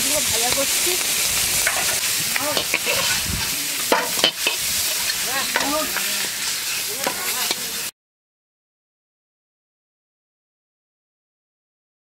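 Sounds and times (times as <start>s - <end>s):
prawns sizzling in hot oil: 0.0s - 7.9s.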